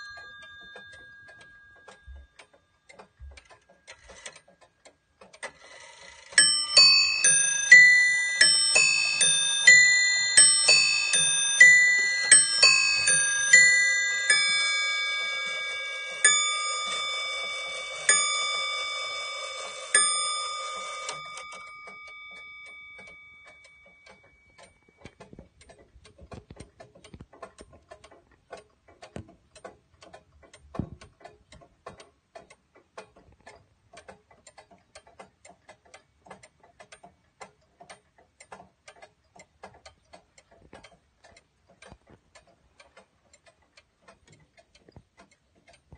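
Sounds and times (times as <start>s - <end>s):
clock striking a bell: 0.0s - 2.4s, 6.4s - 24.5s
clock ticking: 0.0s - 45.9s.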